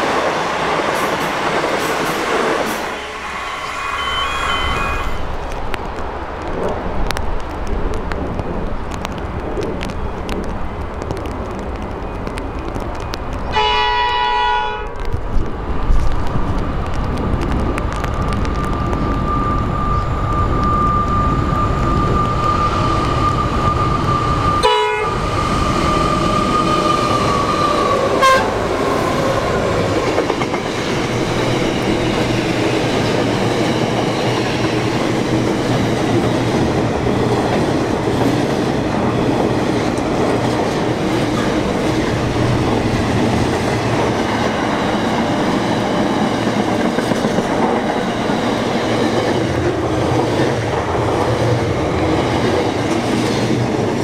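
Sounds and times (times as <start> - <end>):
train wheels rumbling and clattering: 0.0 - 54.0
locomotive high tone: 2.6 - 5.8, 18.0 - 30.1.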